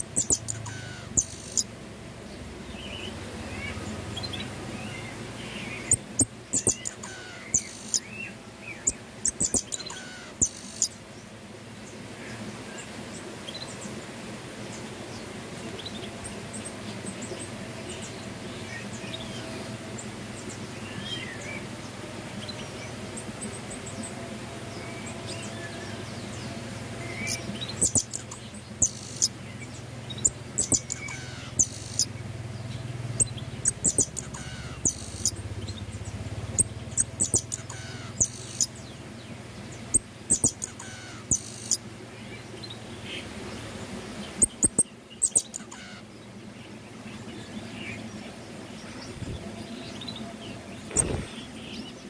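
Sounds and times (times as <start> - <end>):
finch singing high thin notes: 0.0 - 1.7, 5.8 - 8.1, 30.1 - 32.1, 33.2 - 35.4, 36.6 - 38.7
steady low hum: 0.0 - 52.0.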